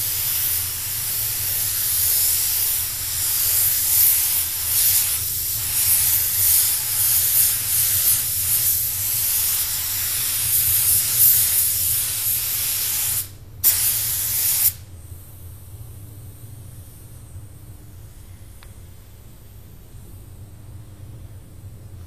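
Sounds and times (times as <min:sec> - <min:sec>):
paint spray gun hissing: 0:00.0 - 0:14.8.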